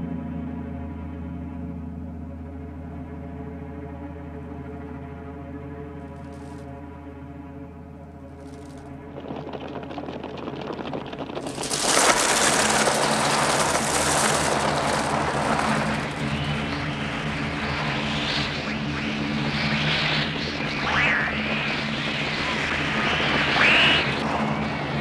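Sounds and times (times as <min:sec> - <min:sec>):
steady low drone: 0:00.0 - 0:25.0
whirring of many wings: 0:06.1 - 0:06.6, 0:08.3 - 0:25.0
rising and falling shrieks: 0:19.4 - 0:25.0
crows cawing harshly: 0:20.8 - 0:21.5, 0:23.6 - 0:24.2.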